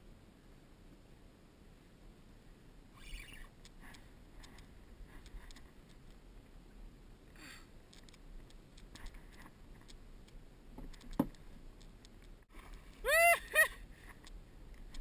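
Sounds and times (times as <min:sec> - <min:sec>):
pitched calls: 0:03.0 - 0:04.0.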